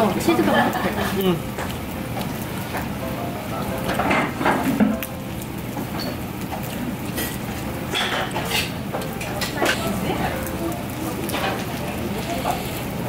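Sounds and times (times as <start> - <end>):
low restaurant hum: 0.0 - 13.0
metal spoon scraping a pan: 7.2 - 8.8.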